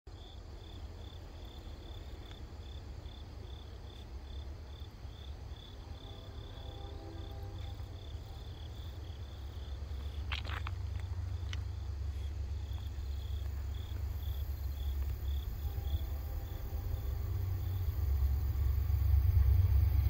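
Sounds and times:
cricket chirping: 0.1 - 20.0
low rumble: 9.0 - 20.0.

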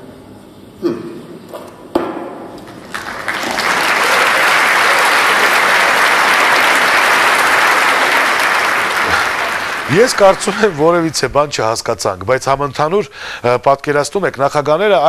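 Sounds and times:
large audience applauding: 2.6 - 11.6.

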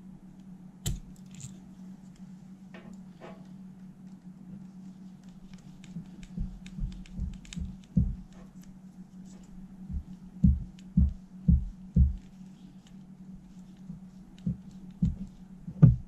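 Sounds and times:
steady low hum: 0.0 - 16.0
dull handling knocks: 15.0 - 16.0.

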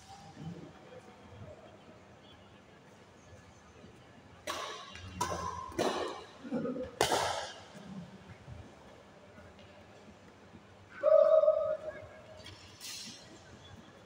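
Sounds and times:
racket hitting shuttlecock: 4.4 - 7.7.

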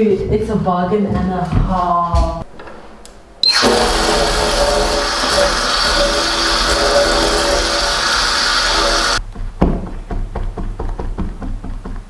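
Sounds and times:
tap water running into sink: 3.5 - 9.2.

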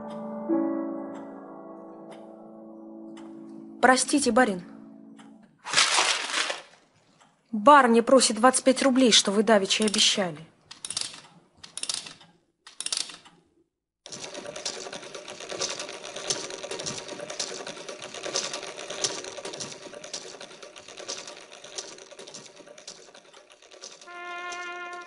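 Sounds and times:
clockwork toy clicking and whirring: 9.0 - 13.4, 14.1 - 25.0.

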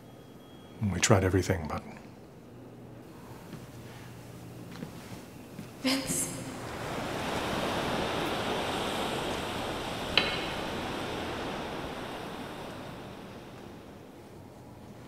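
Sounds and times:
even rushing noise: 6.3 - 15.0.

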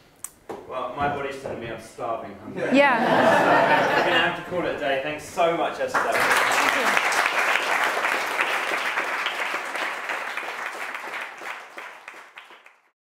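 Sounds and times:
audience applauding: 5.9 - 12.9.

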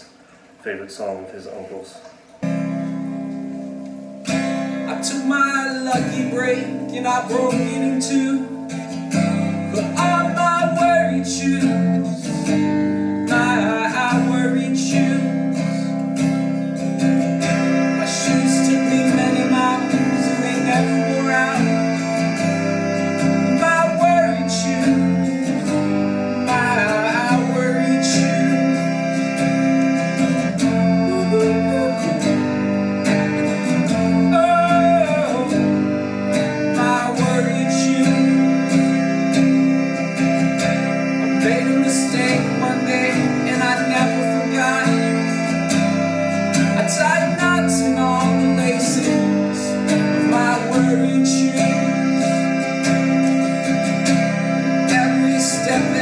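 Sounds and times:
strummed acoustic guitar: 0.0 - 56.0
keyboard sustained chords: 2.4 - 56.0
man singing: 4.9 - 8.8, 9.7 - 12.4, 13.3 - 16.0, 17.5 - 22.6, 23.2 - 25.7, 26.4 - 32.3, 34.0 - 35.7, 36.8 - 39.0, 41.3 - 45.8, 46.5 - 53.0, 54.7 - 56.0.

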